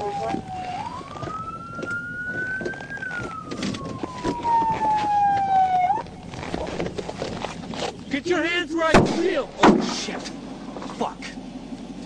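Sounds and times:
police siren wailing: 0:00.0 - 0:07.6.

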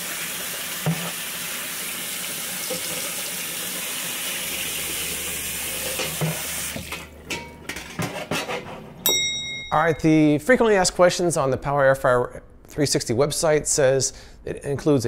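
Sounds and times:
faucet running onto metal tray: 0:00.1 - 0:07.9.

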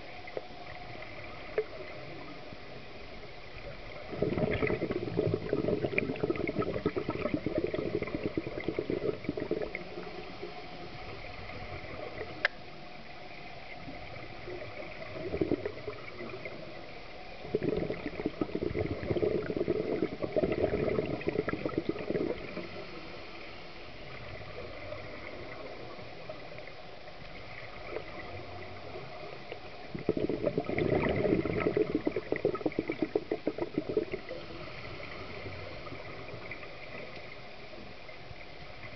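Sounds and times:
regulator bubbling exhalations: 0:03.8 - 0:10.4, 0:14.6 - 0:16.6, 0:17.4 - 0:23.2, 0:29.6 - 0:37.4.

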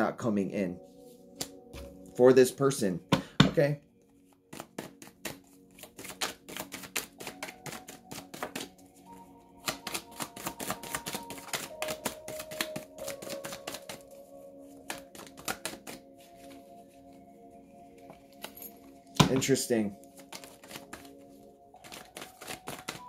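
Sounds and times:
soft background music: 0:00.0 - 0:23.0
cards shuffling: 0:04.4 - 0:08.8, 0:09.6 - 0:14.0, 0:14.7 - 0:16.6, 0:18.3 - 0:23.0.

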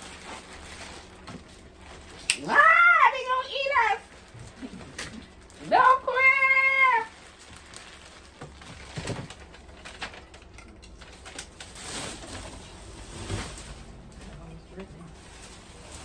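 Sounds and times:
person exclaiming: 0:02.3 - 0:04.0.

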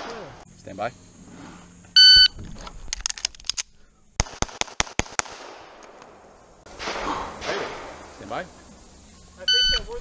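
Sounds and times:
pistol gunshots: 0:04.2 - 0:08.3.

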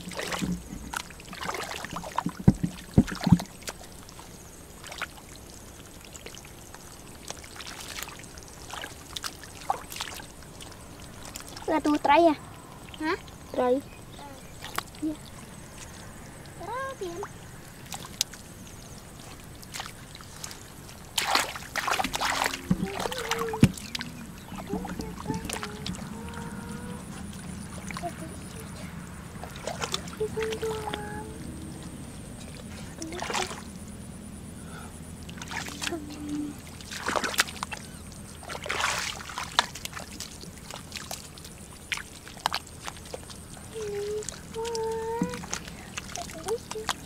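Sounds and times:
small knocks: 0:00.0 - 0:03.8, 0:22.0 - 0:26.1
hands splashing in shallow water: 0:00.0 - 0:05.4, 0:17.8 - 0:26.4, 0:29.4 - 0:31.1, 0:36.7 - 0:47.0
sharp slap of water: 0:21.1 - 0:24.0.

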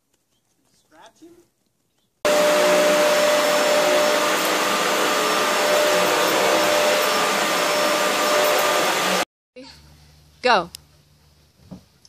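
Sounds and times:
vacuum cleaner running: 0:02.3 - 0:09.3.

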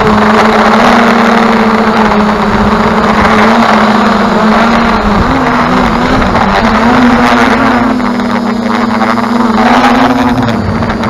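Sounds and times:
drone motors humming: 0:00.0 - 0:11.0
rushing wind: 0:00.0 - 0:11.0.

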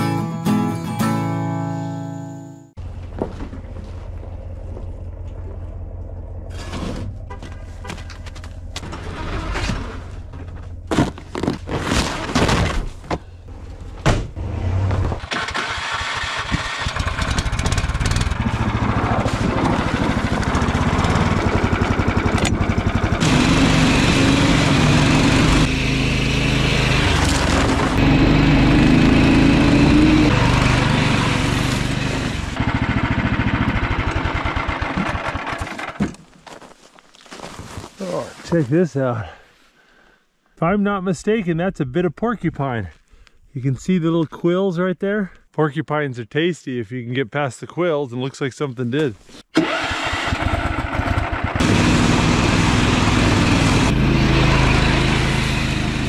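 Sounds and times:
small gasoline engine running: 0:15.3 - 0:36.0, 0:49.6 - 0:56.0.

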